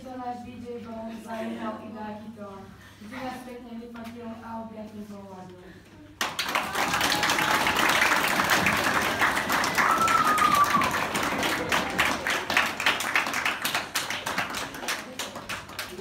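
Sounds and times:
crowd clapping and cheering: 0:06.2 - 0:16.0.

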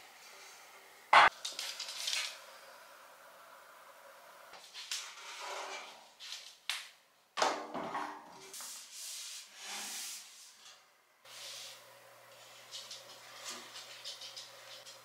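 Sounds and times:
cloth wiping metal shelf: 0:08.4 - 0:10.6.

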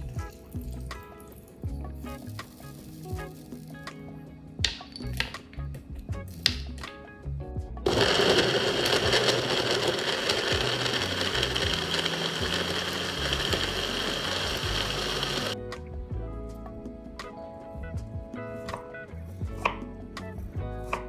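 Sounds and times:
blender running: 0:07.9 - 0:15.6.

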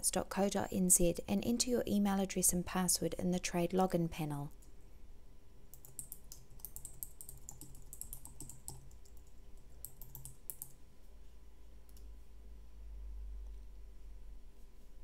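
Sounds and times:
typing on computer keyboard: 0:05.7 - 0:10.8.

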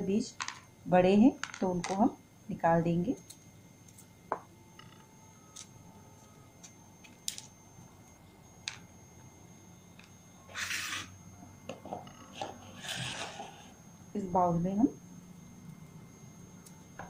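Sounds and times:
knife scraping plastic bowl: 0:10.5 - 0:11.1, 0:12.1 - 0:13.7
knife scraping seeds: 0:10.5 - 0:11.1, 0:12.2 - 0:13.7.

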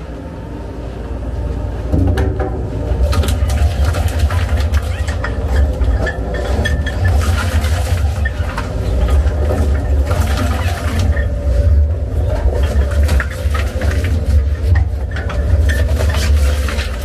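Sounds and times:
shredder crunching and cracking: 0:03.0 - 0:17.0.

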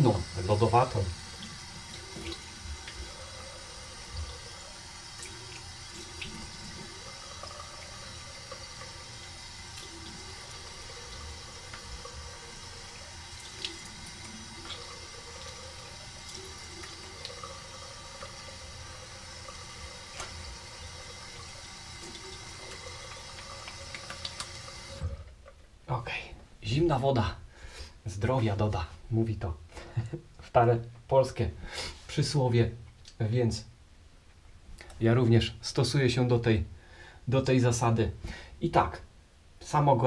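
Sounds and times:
water splashes and drips: 0:00.0 - 0:20.7, 0:21.8 - 0:25.2
tap water running into sink: 0:00.0 - 0:25.3.

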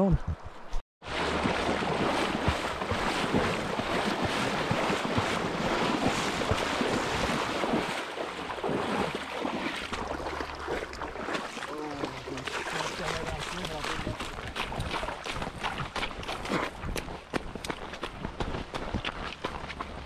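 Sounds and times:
river current rushing: 0:01.0 - 0:14.7
water splashing from wading: 0:01.0 - 0:20.0.

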